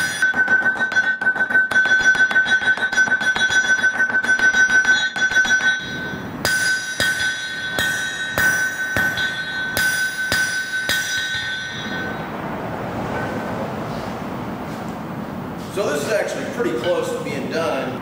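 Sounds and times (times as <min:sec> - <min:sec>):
hammer striking steel on anvil: 0:00.0 - 0:12.4
anvil ringing: 0:00.0 - 0:13.4.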